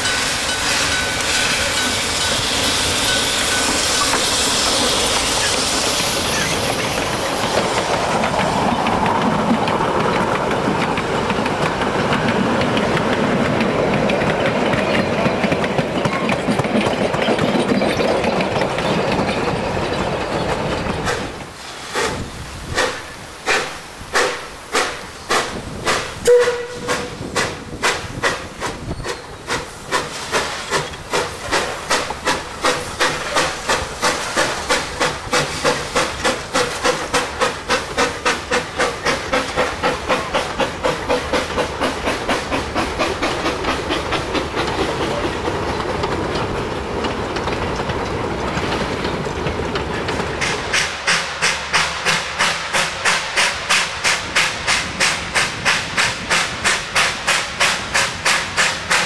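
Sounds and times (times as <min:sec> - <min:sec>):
steam hissing from cylinder cocks: 0:00.0 - 0:49.0, 0:49.7 - 0:59.0
wagons rolling past: 0:06.3 - 0:21.1
steam locomotive exhaust beats: 0:20.4 - 0:59.0.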